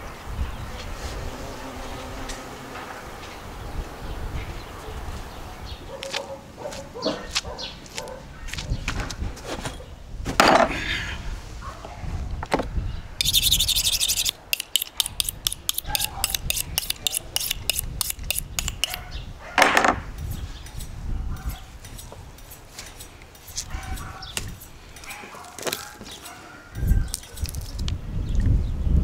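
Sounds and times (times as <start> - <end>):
knife cutting meat: 13.2 - 19.0
knife scraping on honing rod: 13.2 - 19.0, 20.6 - 26.4.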